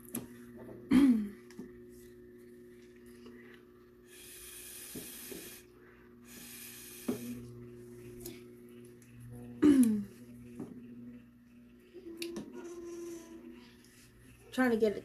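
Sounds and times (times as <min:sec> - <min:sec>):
air puffs through a straw: 0:04.1 - 0:07.4.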